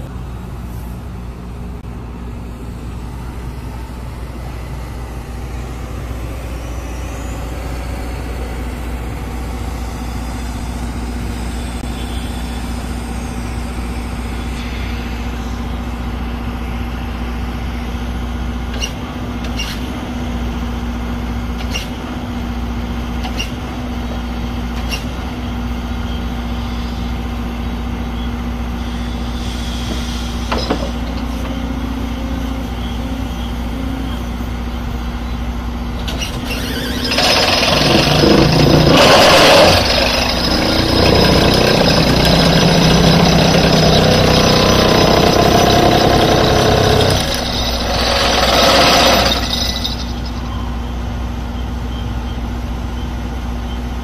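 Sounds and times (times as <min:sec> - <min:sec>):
excavator engine drone: 0:00.0 - 0:54.0.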